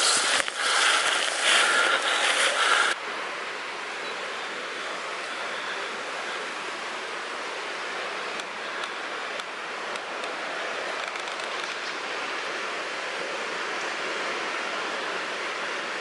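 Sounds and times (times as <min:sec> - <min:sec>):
steady rushing noise: 0:00.0 - 0:03.7.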